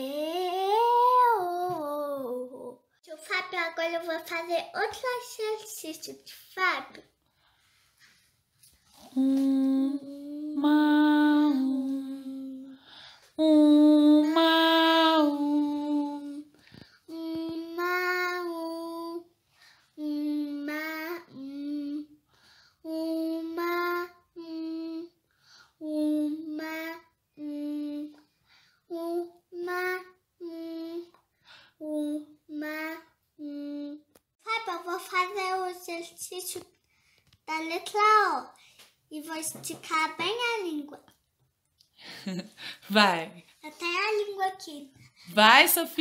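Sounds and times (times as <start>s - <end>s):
girl singing vocal exercise: 0.0s - 2.9s, 8.9s - 19.3s, 19.9s - 22.2s, 22.8s - 25.2s, 25.8s - 28.3s, 28.9s - 31.2s.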